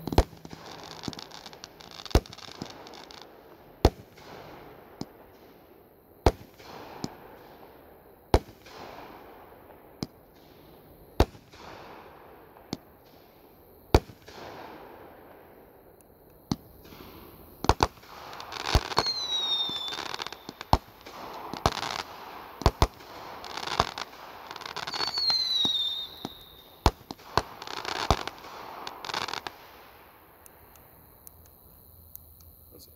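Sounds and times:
firework bangs: 0:00.0 - 0:15.6, 0:16.4 - 0:30.1
crackling hiss: 0:00.0 - 0:32.9
firework whistle: 0:18.0 - 0:29.6.

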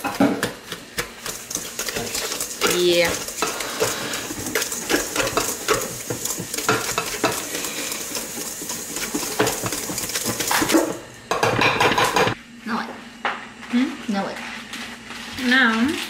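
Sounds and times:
whisk scraping metal bowl: 0:00.3 - 0:11.0.

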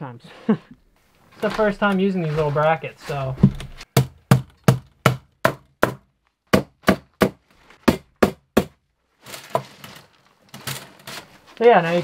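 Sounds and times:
rustling and scraping of bracket: 0:09.2 - 0:12.0.

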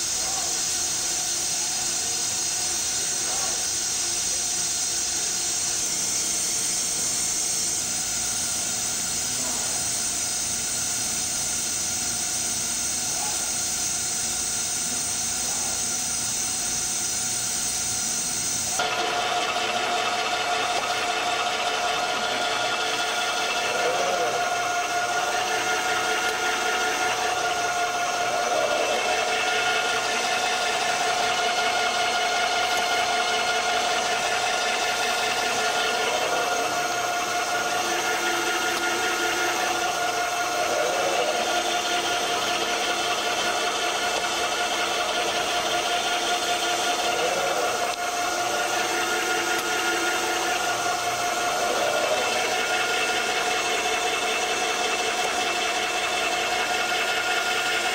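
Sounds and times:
machinery hum and whine: 0:00.0 - 0:57.9.

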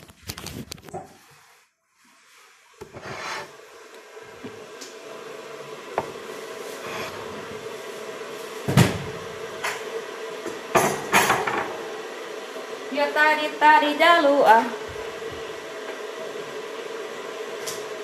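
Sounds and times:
kitchen knocks and clatters: 0:10.7 - 0:11.7.

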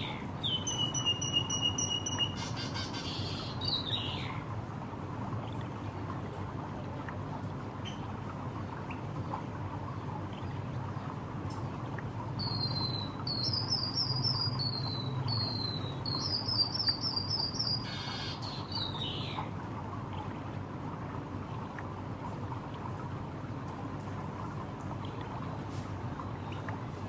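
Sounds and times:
bird singing high thin phrases: 0:00.0 - 0:04.3, 0:12.4 - 0:19.4.

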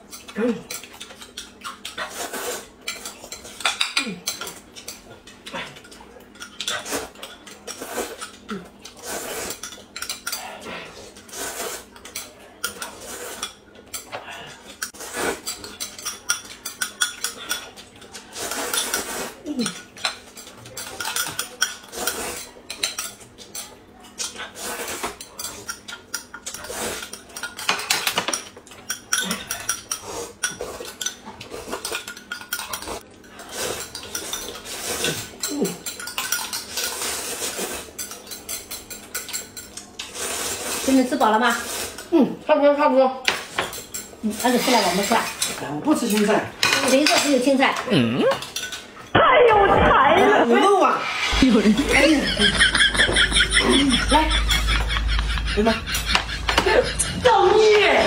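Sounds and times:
slurping soup: 0:01.8 - 0:03.4, 0:06.6 - 0:09.7, 0:10.7 - 0:12.0, 0:14.6 - 0:15.8, 0:18.2 - 0:19.8, 0:24.3 - 0:25.6, 0:36.6 - 0:38.0.

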